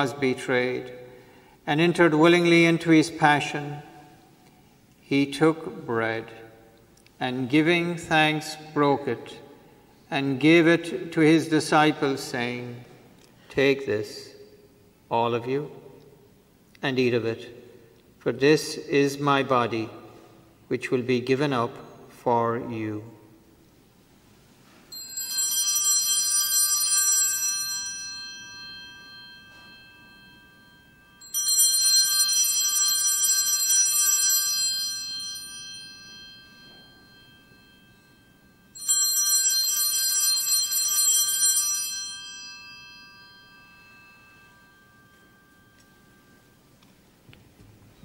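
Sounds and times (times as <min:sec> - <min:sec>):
altar bells ringing: 0:24.6 - 0:47.3.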